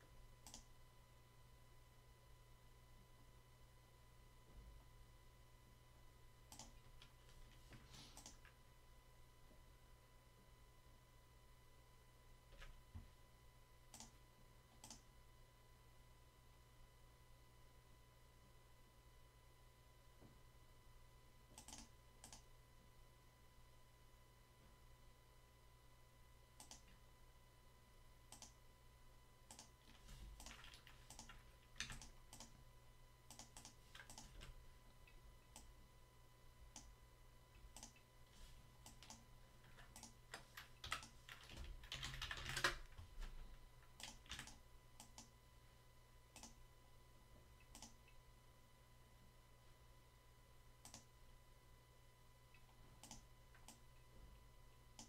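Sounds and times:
faint electrical hum: 0.0s - 55.0s
computer keyboard and mouse clicks: 0.4s - 0.7s, 6.5s - 7.2s, 8.1s - 8.6s, 13.9s - 14.2s, 14.8s - 15.0s, 21.5s - 22.4s, 26.6s - 27.0s, 28.3s - 28.6s, 29.5s - 32.6s, 33.3s - 34.6s, 36.7s - 36.9s, 37.7s - 38.1s, 38.8s - 43.1s, 43.9s - 45.3s, 46.4s - 46.6s, 47.6s - 48.2s, 50.8s - 51.1s, 52.6s - 53.8s.

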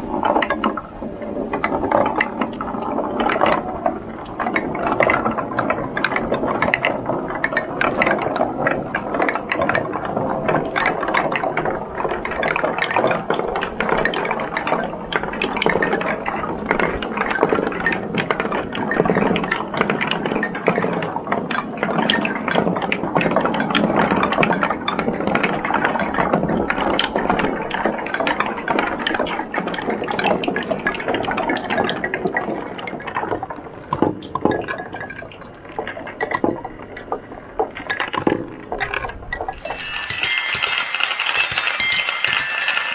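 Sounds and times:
steel balls clinking on plastic: 39.7s - 42.9s.

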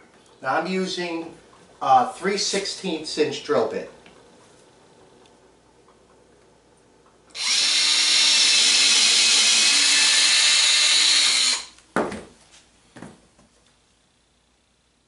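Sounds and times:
cordless drill boring: 7.3s - 11.8s.

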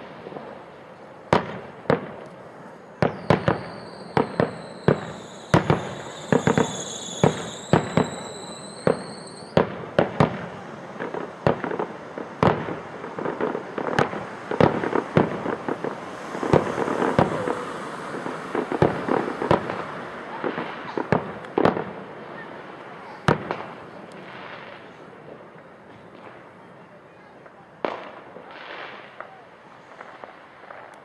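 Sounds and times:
firework bangs: 0.0s - 31.0s
firework crackling: 0.0s - 31.0s.

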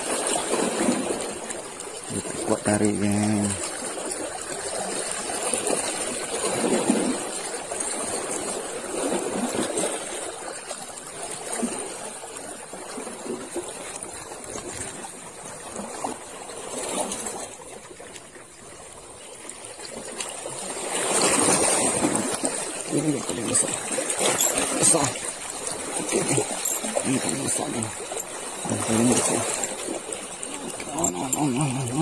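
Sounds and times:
waves lapping against rocks: 0.0s - 32.0s.

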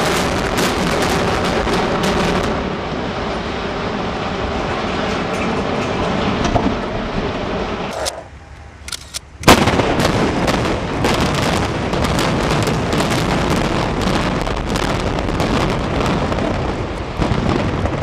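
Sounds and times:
building collapsing rumble: 9.5s - 18.0s.

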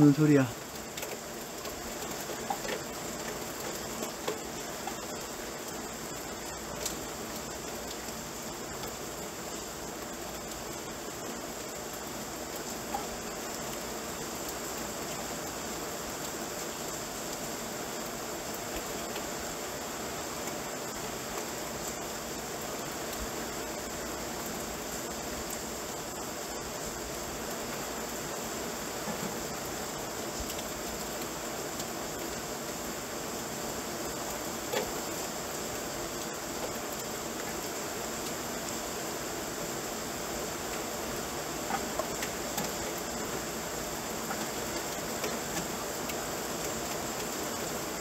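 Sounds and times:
rain falling steadily: 0.0s - 48.0s
water drips: 0.2s - 17.5s, 33.9s - 39.0s, 40.4s - 48.0s.

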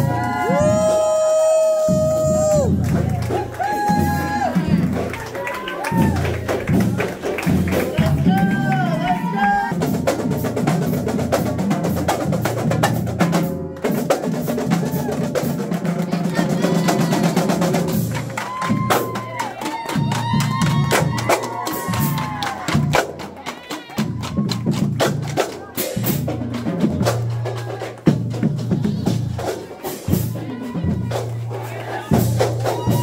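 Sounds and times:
students cheering and whooping: 0.0s - 6.5s, 7.9s - 9.8s, 18.3s - 24.8s, 30.4s - 33.0s
marching drumline: 0.0s - 33.0s.

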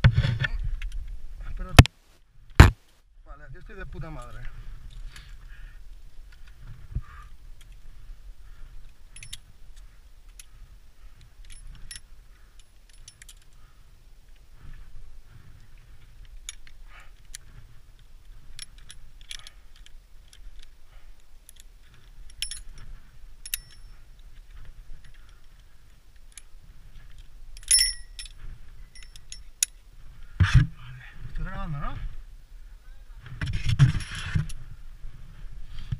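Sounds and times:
carabiners clinking on chains: 8.9s - 10.5s, 11.2s - 13.6s, 18.3s - 20.7s, 21.4s - 25.6s, 26.2s - 29.8s.

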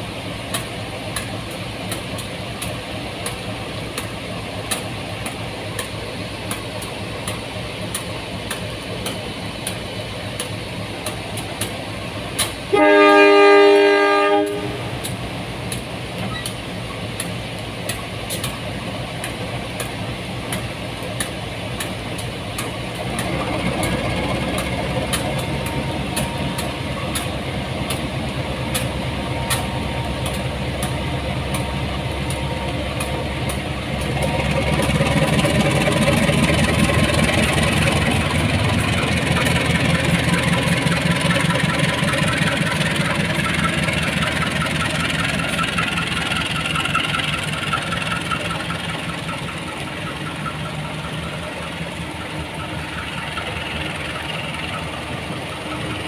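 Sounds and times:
wheels clicking over rail joints: 0.5s - 12.7s, 14.4s - 56.0s
locomotive horn blast: 12.7s - 15.1s
diesel engine running: 14.4s - 56.0s.

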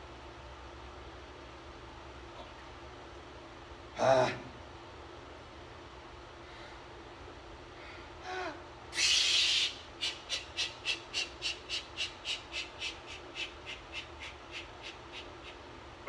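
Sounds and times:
man breathing hard: 7.7s - 8.7s, 10.3s - 15.6s.

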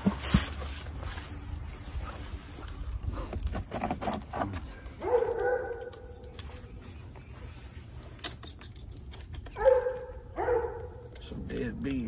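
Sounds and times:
dog yelping: 5.0s - 6.2s, 9.5s - 11.1s.

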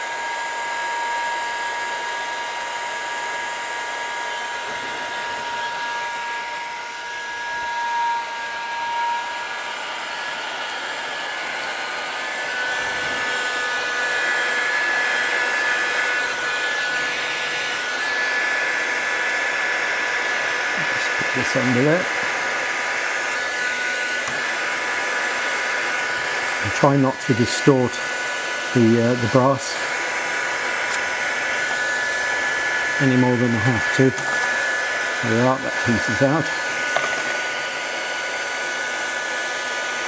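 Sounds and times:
heat gun fan whine: 0.0s - 40.0s.

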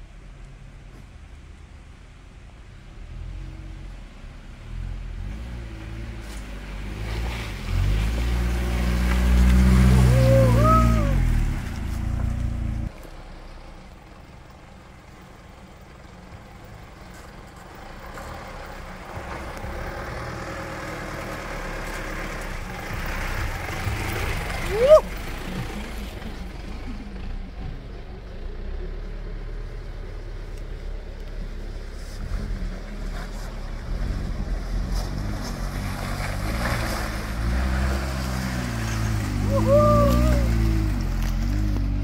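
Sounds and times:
quieter engine climbing: 0.0s - 42.0s
suv engine labouring: 0.0s - 42.0s.

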